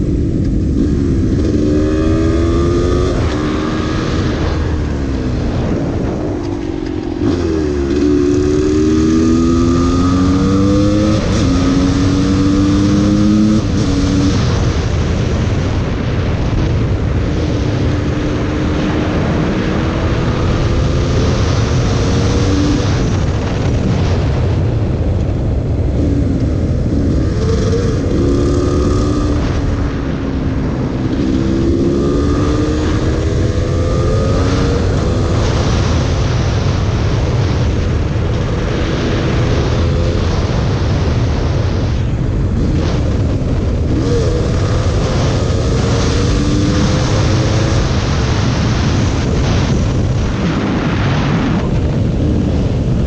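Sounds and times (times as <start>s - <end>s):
wind rush on microphone: 0.0s - 53.0s
dirt bike engine revving: 0.7s - 14.8s, 26.0s - 36.2s, 42.6s - 49.8s.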